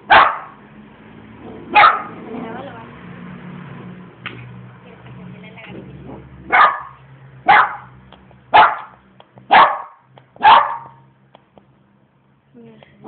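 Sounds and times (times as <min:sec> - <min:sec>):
dog barking: 0:00.0 - 0:00.6, 0:01.7 - 0:02.2, 0:06.5 - 0:11.0.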